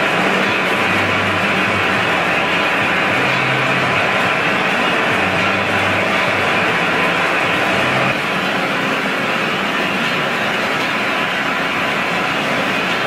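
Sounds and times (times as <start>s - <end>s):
machinery running: 0.0s - 13.0s
low hum: 0.7s - 8.2s.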